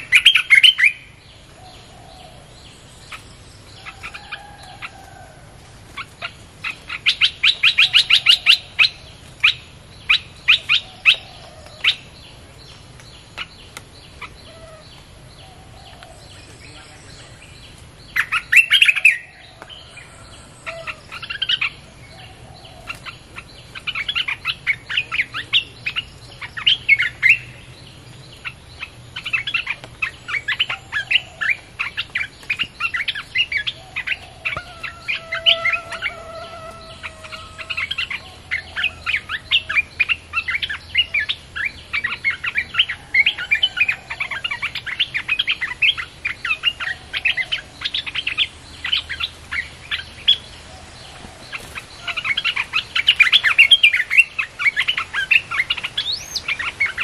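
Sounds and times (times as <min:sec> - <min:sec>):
bird song chattering: 0:00.0 - 0:05.2, 0:06.0 - 0:57.0.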